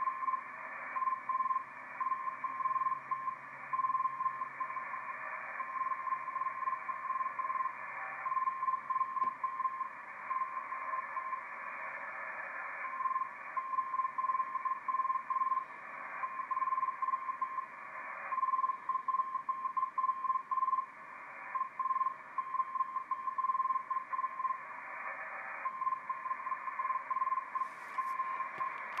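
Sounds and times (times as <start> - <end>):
radio band noise hiss: 0.0 - 29.0
morse code beeps: 25.8 - 29.0
brief radio crackle: 27.5 - 29.0.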